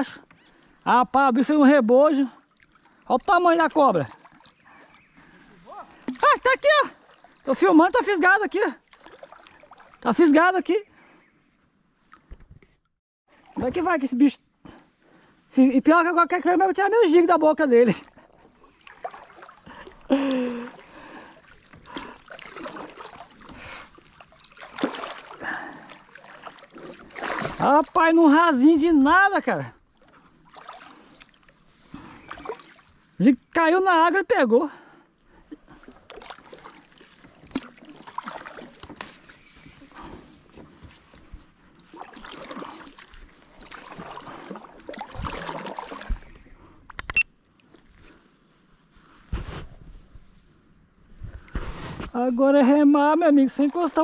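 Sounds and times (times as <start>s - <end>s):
muddy water splashing: 1.7s - 11.2s, 17.6s - 34.1s, 34.8s - 47.2s, 52.5s - 54.0s.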